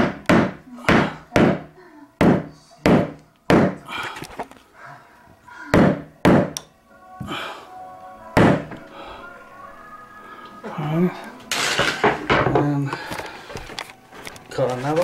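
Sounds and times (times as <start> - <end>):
hammer knocking on wood: 0.0 - 1.6.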